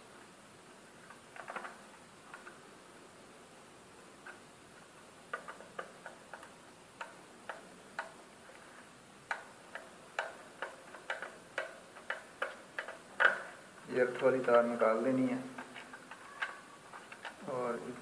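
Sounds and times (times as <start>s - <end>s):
screwdriver clicks and ticks: 9.3s - 13.4s.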